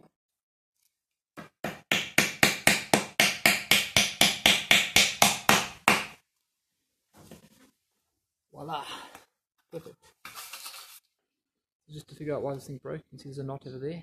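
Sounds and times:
hammer driving nail into wood: 1.4s - 6.2s.

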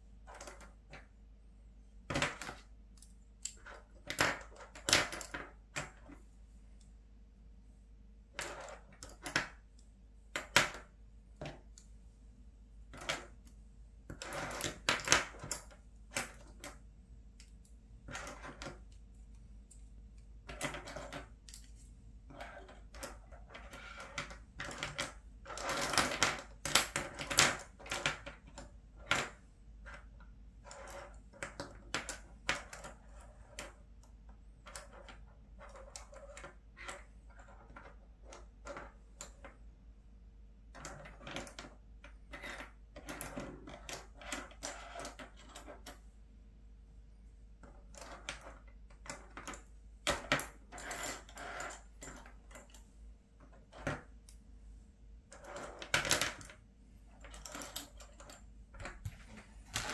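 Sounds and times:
plastic pens clattering on table: 20.5s - 30.1s.

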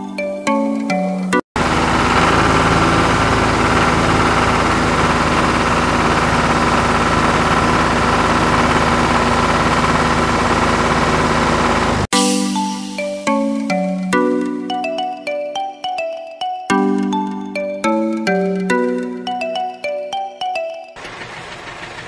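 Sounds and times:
tractor engine running: 1.6s - 12.1s, 21.0s - 22.0s.

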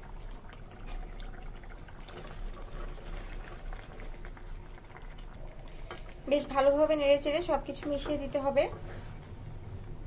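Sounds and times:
oil and masala bubbling: 0.0s - 10.0s
wooden spatula stirring: 5.7s - 9.4s.

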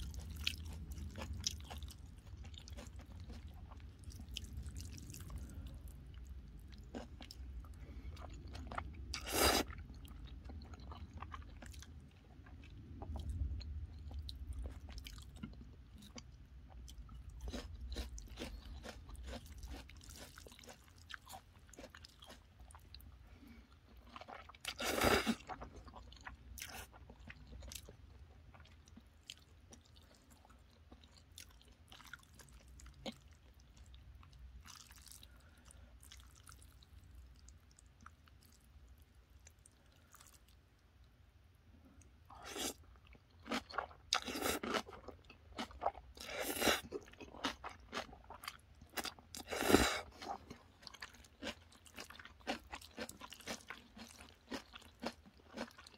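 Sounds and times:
wet chewing of noodles: 0.0s - 40.7s, 42.0s - 55.9s.

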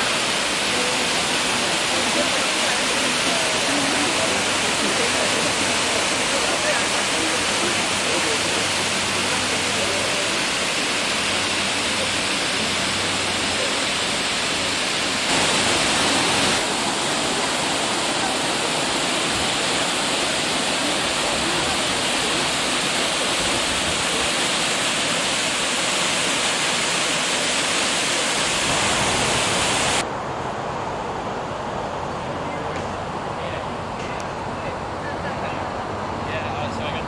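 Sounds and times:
waterfall rushing: 0.0s - 30.1s.

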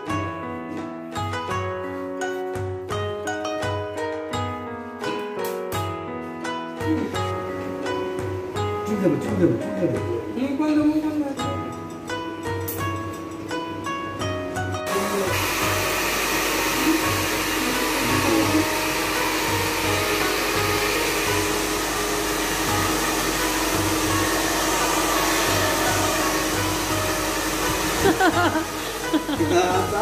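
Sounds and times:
background music with low beat: 0.0s - 30.0s
hair dryer blowing: 14.9s - 30.0s.

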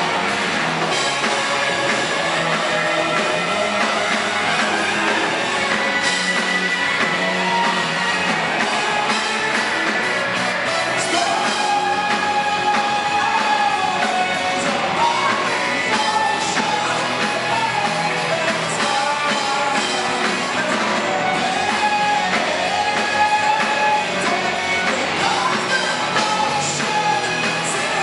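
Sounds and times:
rock band playing live: 0.0s - 28.0s.

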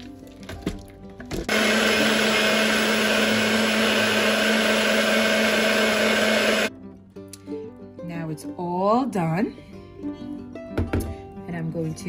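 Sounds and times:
blender whirring: 1.5s - 6.7s.

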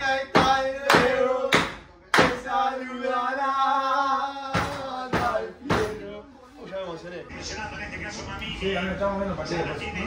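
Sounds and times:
sharp claps: 0.4s - 2.4s.

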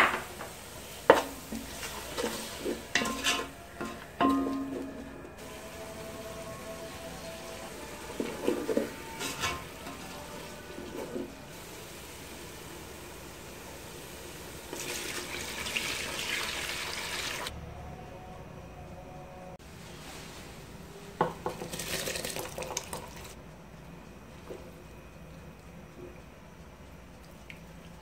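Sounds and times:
stock pouring into a metal pot: 14.7s - 17.5s, 21.4s - 23.4s.

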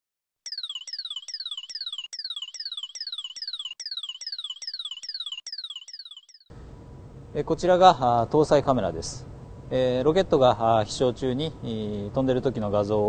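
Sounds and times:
electronic chirps falling in pitch: 0.5s - 6.5s.

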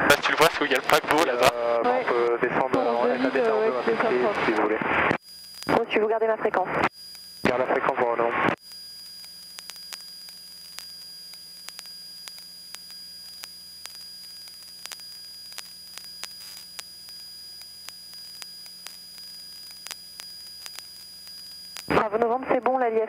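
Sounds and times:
faint high whine: 0.0s - 23.0s
sharp clicks: 9.0s - 21.9s.

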